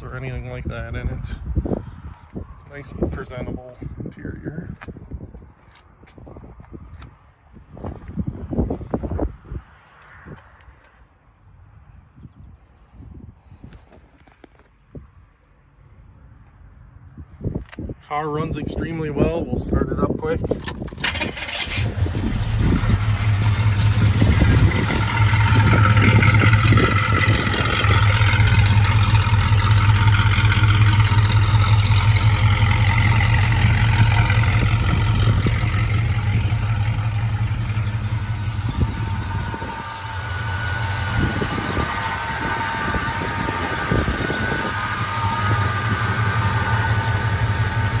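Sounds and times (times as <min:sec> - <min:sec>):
car engine idling: 0:21.0 - 0:48.0.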